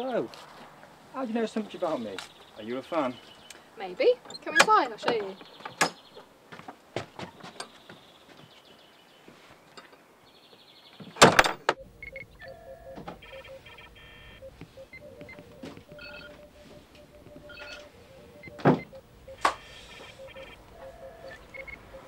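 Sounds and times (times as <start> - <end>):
short electronic beeps: 11.8 - 22.0.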